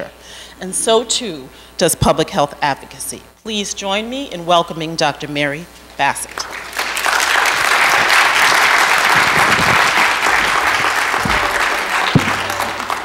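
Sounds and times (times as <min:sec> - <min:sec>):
audience applauding: 0:06.4 - 0:13.0
single knock: 0:12.2 - 0:12.7.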